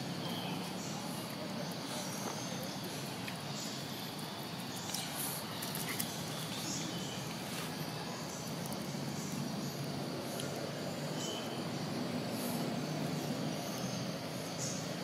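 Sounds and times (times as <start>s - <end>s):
faint high chirps: 0.0s - 11.9s
small clicks and rustles: 4.8s - 7.9s.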